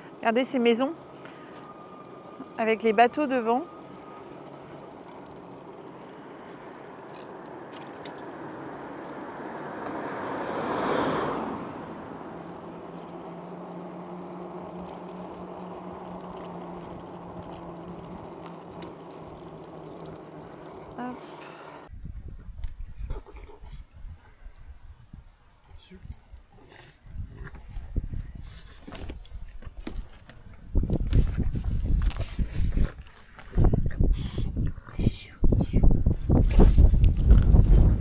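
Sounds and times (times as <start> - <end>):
vehicle passing: 0.0 - 21.9
wind and road noise: 0.0 - 38.0.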